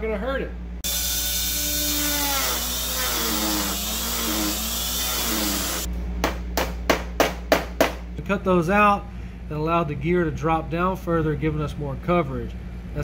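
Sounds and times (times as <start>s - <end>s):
rotary tool grinding: 0.9s - 5.9s.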